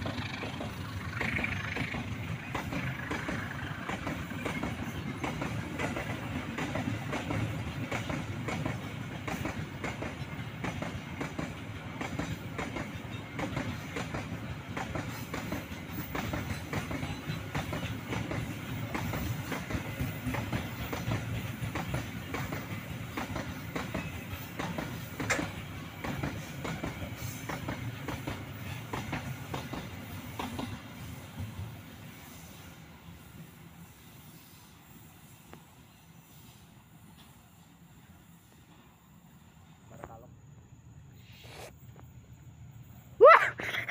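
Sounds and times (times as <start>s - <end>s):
wheels clacking over rail joints: 0.0s - 31.6s
freight train rumbling past: 0.0s - 41.2s.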